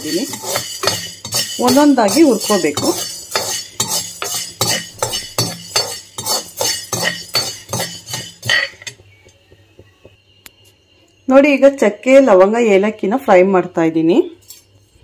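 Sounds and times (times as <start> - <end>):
spoon scraping peppercorns in pan: 0.0 - 9.8.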